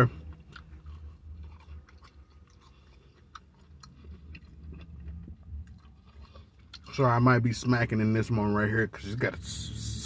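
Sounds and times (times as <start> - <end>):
person chewing wetly: 0.0 - 7.8
low steady hum: 0.0 - 10.0.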